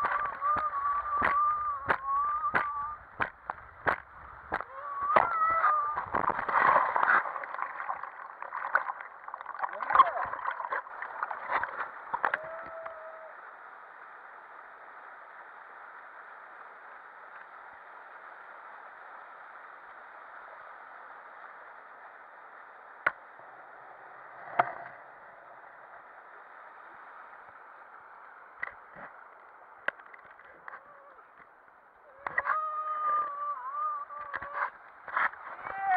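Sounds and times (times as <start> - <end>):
water splashing: 0.0 - 13.0
water rushing down plastic slide: 0.0 - 13.1.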